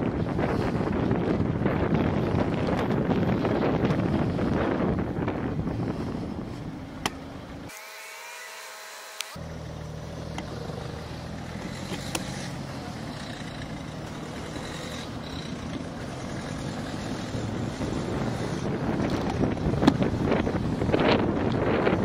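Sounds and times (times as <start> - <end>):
wind noise on microphone: 0.0 - 7.0, 13.9 - 22.0
car engine humming: 0.0 - 22.0.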